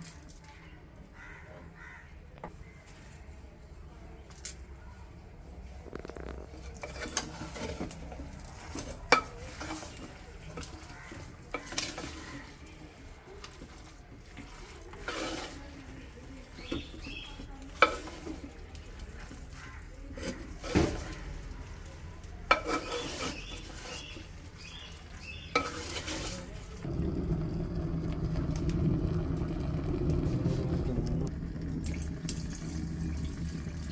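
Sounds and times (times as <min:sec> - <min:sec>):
faint sizzle: 0:04.6 - 0:33.9
spatula scraping clay pot: 0:05.8 - 0:29.0.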